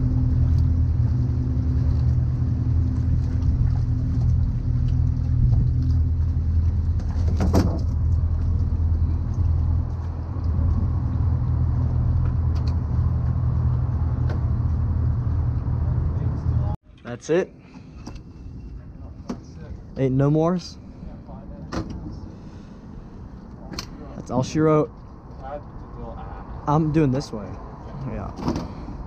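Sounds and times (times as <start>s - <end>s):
low mechanical hum: 0.0s - 16.8s.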